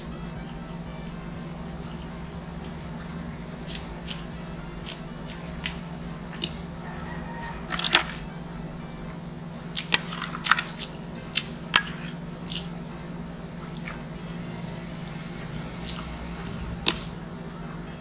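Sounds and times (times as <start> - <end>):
low steady hum: 0.0 - 18.0
chewing food: 3.6 - 8.7, 9.4 - 12.8, 13.5 - 14.2, 15.0 - 17.2.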